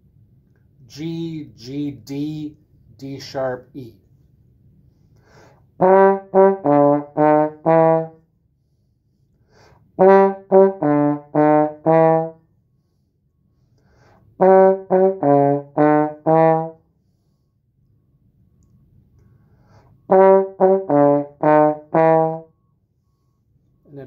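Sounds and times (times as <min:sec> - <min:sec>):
trombone phrase: 0:05.8 - 0:08.2, 0:10.0 - 0:12.4, 0:14.4 - 0:16.8, 0:20.1 - 0:22.5.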